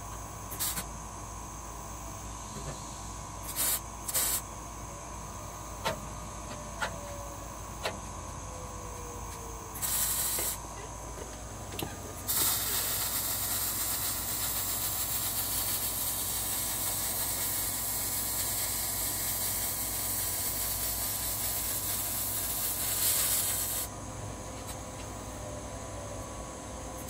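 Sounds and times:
welding arc hissing: 0:00.0 - 0:00.9, 0:02.5 - 0:04.5, 0:09.7 - 0:10.6, 0:11.8 - 0:23.9.

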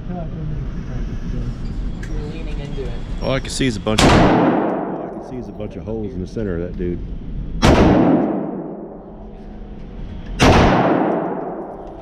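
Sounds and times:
rifle shots echoing indoors: 0:04.0 - 0:05.2, 0:07.6 - 0:09.2, 0:10.4 - 0:12.0.

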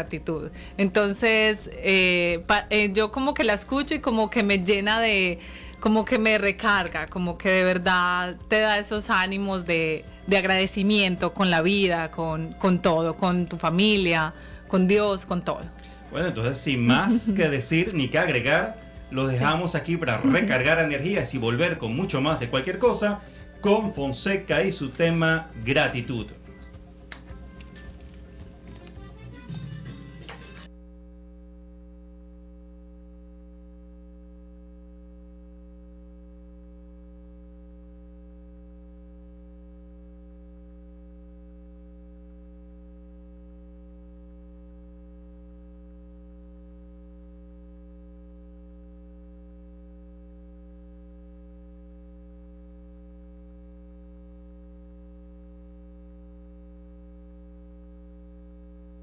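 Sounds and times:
music: 0:00.0 - 0:30.7
electrical hum: 0:00.0 - 0:59.0.

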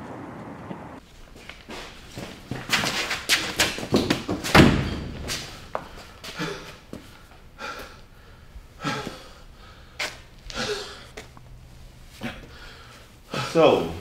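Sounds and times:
knocks and bumps: 0:02.6 - 0:05.9
door slamming shut: 0:04.5 - 0:05.2
heavy breathing: 0:05.5 - 0:14.0.

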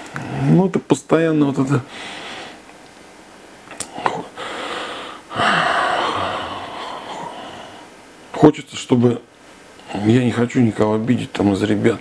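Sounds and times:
man breathing in: 0:01.9 - 0:02.6, 0:04.4 - 0:08.0
man sighing: 0:03.9 - 0:07.9.

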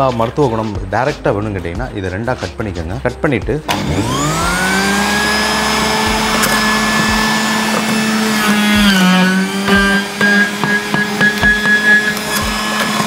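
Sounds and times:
electric juicer motor humming: 0:03.7 - 0:13.0.

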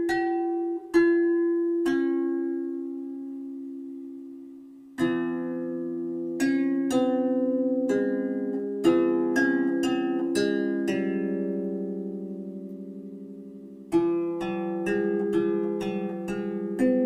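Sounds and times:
gentle plucked-string melody: 0:00.0 - 0:17.0.

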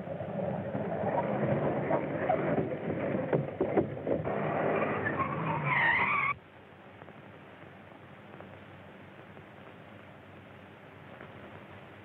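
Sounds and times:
faint hiss: 0:04.2 - 0:12.0
car skidding to a stop: 0:04.3 - 0:06.4
tyres squealing: 0:04.3 - 0:06.4.

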